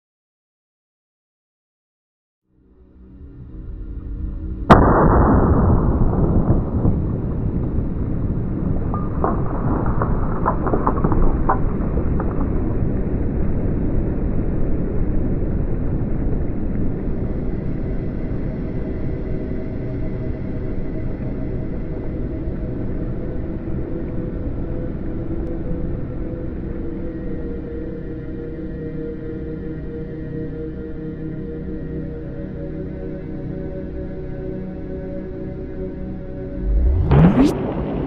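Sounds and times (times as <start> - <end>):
low rumble: 3.6 - 16.9, 36.5 - 38.0
loud bang: 4.7 - 13.4, 36.6 - 38.0
faint cracks: 8.4 - 13.7.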